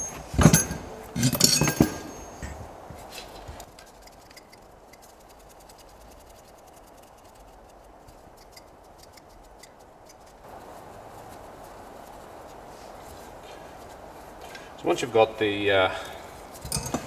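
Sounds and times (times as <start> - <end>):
light metallic ticks and clicks: 3.2 - 6.3, 7.2 - 10.4.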